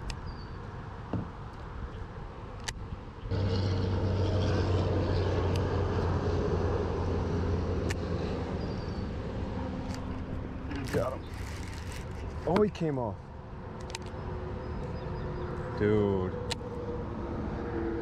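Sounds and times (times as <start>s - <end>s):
low mechanical drone: 3.3s - 12.5s.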